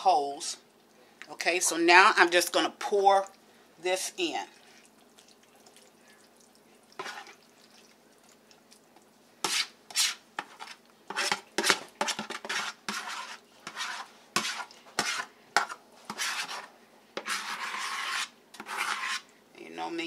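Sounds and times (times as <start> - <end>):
metal spoon scraping a bowl: 7.0 - 7.4, 9.4 - 19.3.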